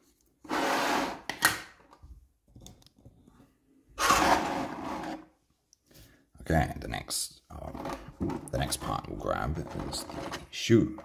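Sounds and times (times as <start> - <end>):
plastic base set on wooden table: 2.7 - 5.3, 7.6 - 8.8, 9.6 - 11.0.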